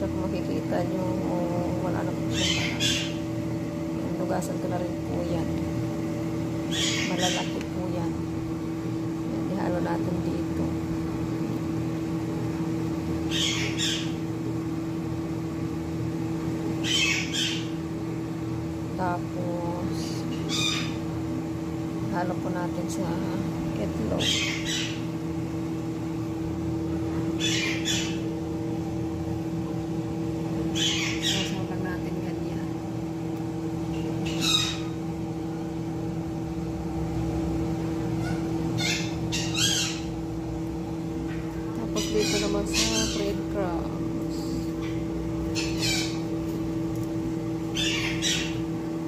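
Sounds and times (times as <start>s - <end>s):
fan motor hum: 0.0s - 49.0s
high wavering calls: 2.3s - 3.2s, 6.7s - 7.6s, 30.7s - 31.6s, 34.2s - 35.0s, 38.2s - 40.1s, 41.8s - 43.4s, 44.8s - 46.2s, 47.7s - 48.6s.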